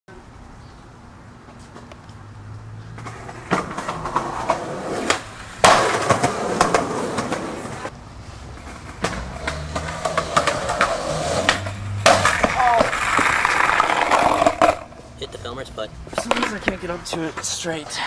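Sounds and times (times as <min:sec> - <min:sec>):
skateboard wheels rolling on concrete: 0:00.2 - 0:18.0
skateboard landing clap: 0:03.5 - 0:07.9, 0:08.9 - 0:14.9, 0:16.2 - 0:17.3.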